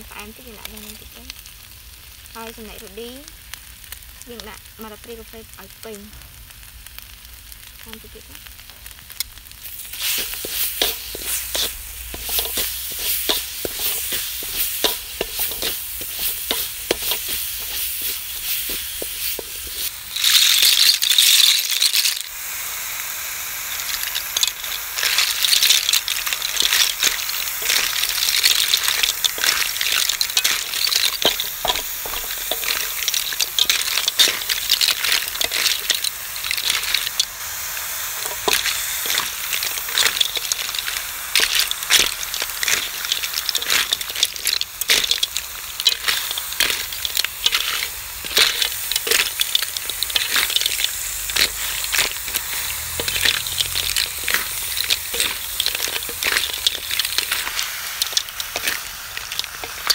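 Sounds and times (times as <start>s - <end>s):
loud burst of sizzling: 0.0s - 59.9s
steady frying: 0.0s - 59.9s
snail shells clattering: 8.4s - 59.9s
wooden spatula scraping a wok: 9.8s - 22.1s, 23.7s - 37.2s.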